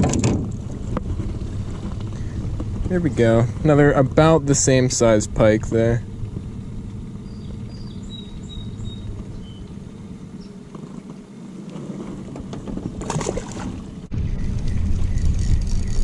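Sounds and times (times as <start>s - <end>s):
outboard motor running: 0.0s - 16.0s
faint bird chirps: 7.2s - 9.7s
fish splashing into water: 13.0s - 13.8s.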